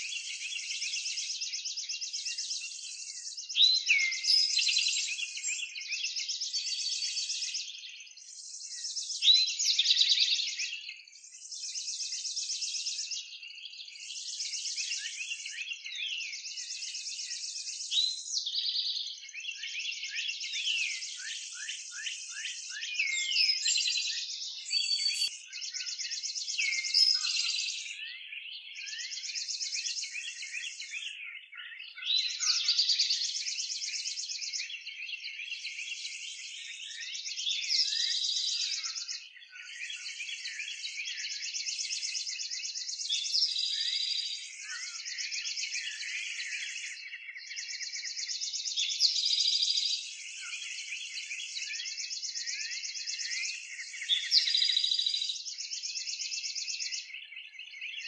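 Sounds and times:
birds chirping and whistling: 0.0s - 58.0s
rapid high bird trills: 24.7s - 25.3s.

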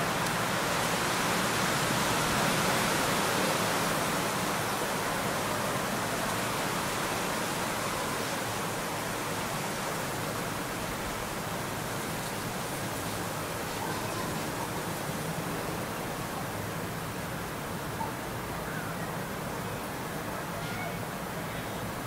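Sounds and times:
steady background hiss: 0.0s - 22.0s.

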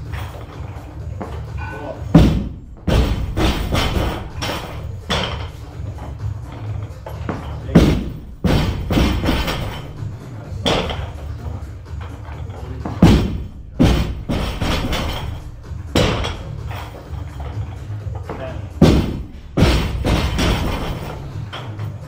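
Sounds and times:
barbell dropped with heavy thud: 2.1s - 5.6s, 7.3s - 11.2s, 12.8s - 17.6s, 18.8s - 21.6s
plates rattling: 2.8s - 18.4s, 19.6s - 22.0s.

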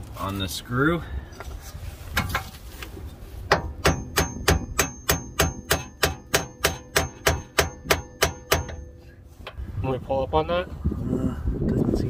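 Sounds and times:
hammer striking metal tool: 3.5s - 9.0s.

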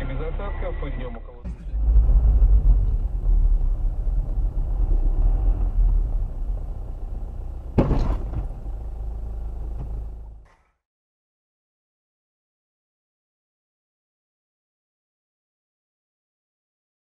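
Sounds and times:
car engine and road rumble: 0.0s - 10.6s
collision bang: 7.7s - 8.8s.

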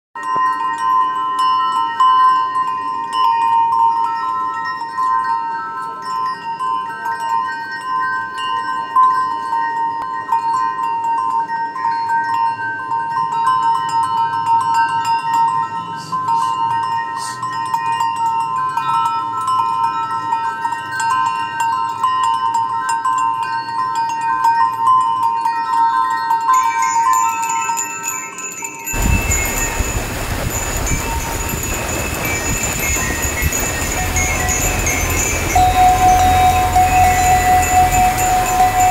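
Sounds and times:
chimes music: 29.0s - 38.9s
steady held tone: 29.0s - 38.9s.

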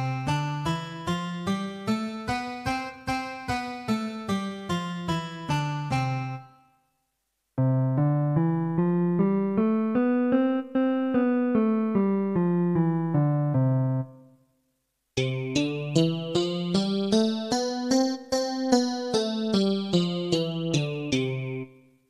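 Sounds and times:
mini keyboard melody: 0.0s - 6.8s, 7.6s - 14.4s, 15.2s - 22.0s.

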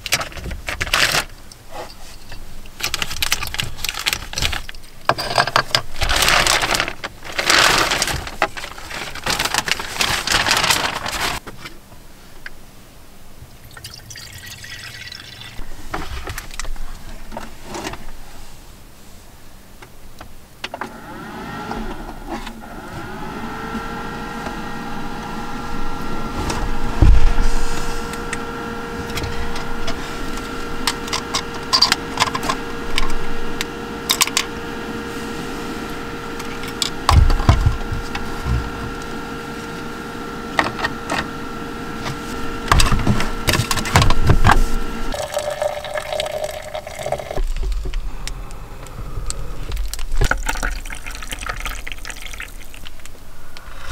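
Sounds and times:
small electric motor humming: 20.9s - 45.6s.

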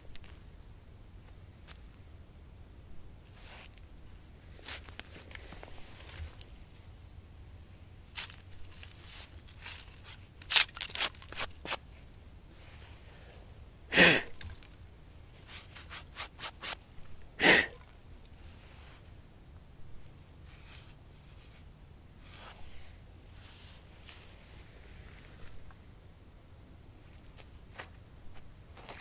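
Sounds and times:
crackles and scrapes: 0.0s - 0.5s, 3.2s - 7.0s, 8.0s - 13.6s, 14.3s - 17.2s, 17.8s - 19.1s, 20.4s - 25.8s, 27.0s - 29.0s
hand sweeping dry leaves: 3.3s - 3.7s, 4.5s - 6.3s, 8.1s - 10.2s, 15.4s - 16.8s, 22.2s - 25.5s.

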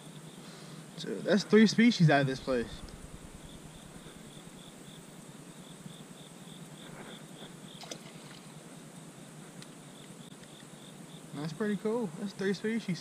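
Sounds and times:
insect chirping: 0.0s - 13.0s.

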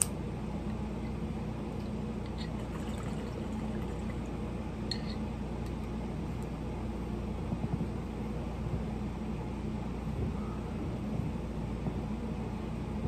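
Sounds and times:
water bubbling in a bong: 2.4s - 4.4s.

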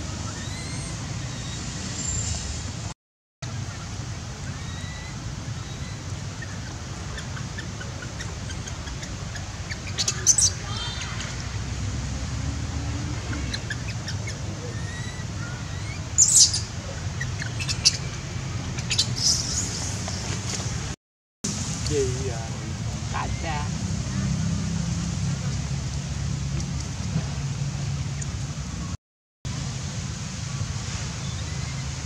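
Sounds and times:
high-pitched animal chirps: 7.2s - 11.4s.

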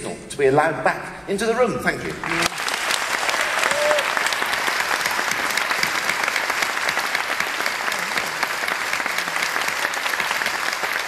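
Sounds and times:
audience applause: 2.2s - 11.0s.

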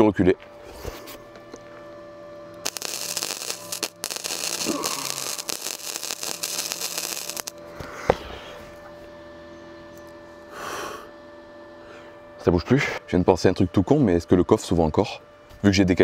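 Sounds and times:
steady electrical hum: 0.0s - 16.0s
arc welding crackle: 2.6s - 7.6s.

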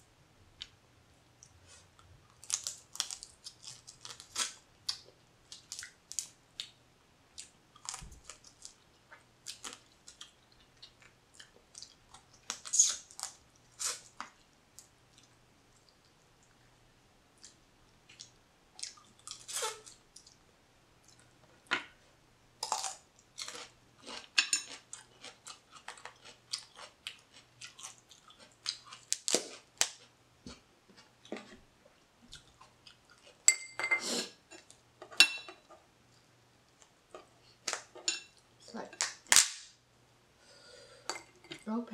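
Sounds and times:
wet chewing: 23.4s - 30.1s.

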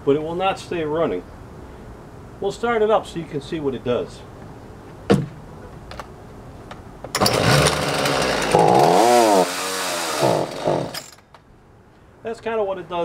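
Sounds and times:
chainsaw revving: 7.1s - 11.2s.

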